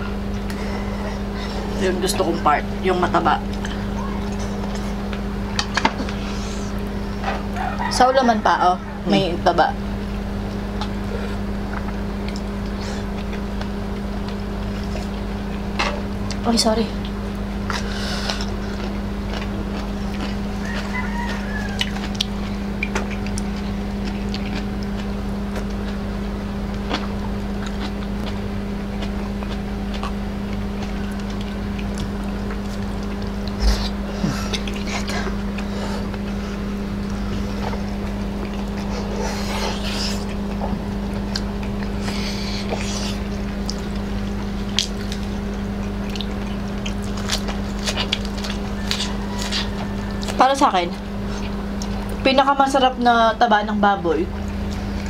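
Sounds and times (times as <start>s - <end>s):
low electrical hum: 0.0s - 55.0s
close chewing and lip smacks: 3.5s - 8.0s, 10.0s - 16.4s, 17.0s - 52.3s, 54.3s - 55.0s
lettuce crunching: 17.0s - 52.2s
wet mouth sounds: 26.7s - 50.3s.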